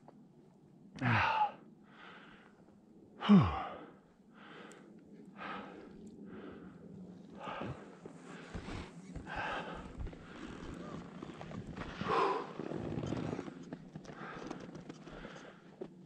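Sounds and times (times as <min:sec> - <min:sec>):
person breathing hard: 0:01.0 - 0:02.6, 0:03.2 - 0:11.0, 0:11.8 - 0:12.7, 0:14.1 - 0:15.8.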